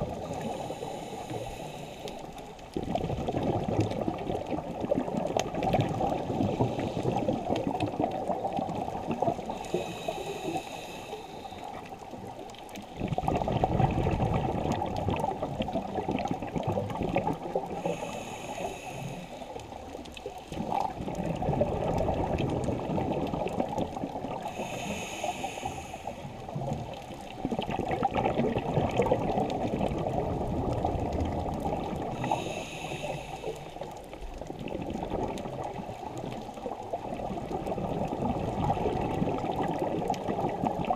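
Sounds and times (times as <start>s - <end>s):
exhaled bubbles gurgling: 0.0s - 40.9s
hissing regulator inhale: 0.2s - 2.5s, 6.4s - 7.4s, 9.4s - 12.0s, 17.7s - 19.8s, 24.4s - 26.4s, 32.2s - 34.0s.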